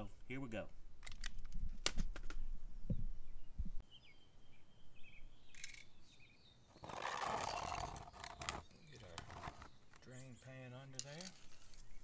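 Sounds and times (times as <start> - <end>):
faint bird chirps: 2.9 - 10.8.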